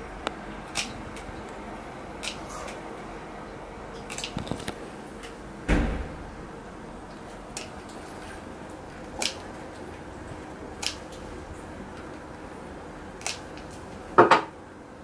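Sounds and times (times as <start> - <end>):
dull thump: 5.7 - 6.4
nail clippers snipping: 13.2 - 13.4.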